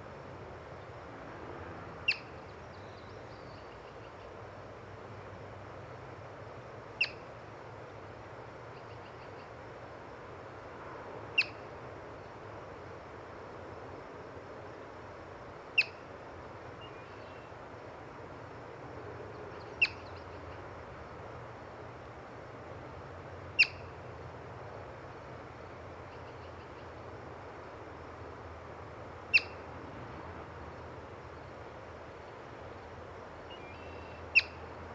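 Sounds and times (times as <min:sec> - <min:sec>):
marmot alarm chirps: 0:23.6 - 0:23.8, 0:29.3 - 0:29.6, 0:33.5 - 0:34.6.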